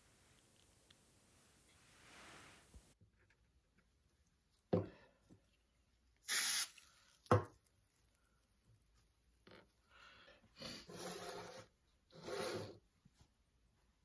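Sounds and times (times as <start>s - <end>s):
short hiss: 6.2s - 6.9s.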